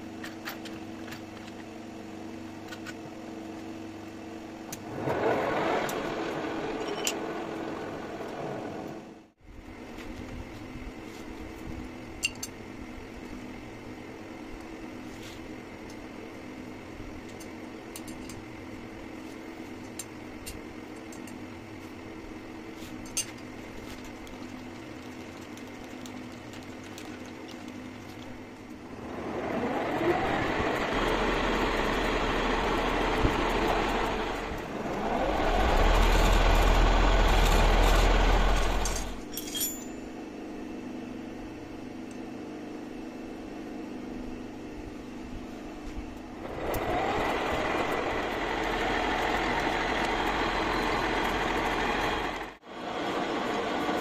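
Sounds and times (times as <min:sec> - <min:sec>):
metal lathe motor hum: 0:04.6 - 0:09.2, 0:28.8 - 0:39.3, 0:46.4 - 0:54.0.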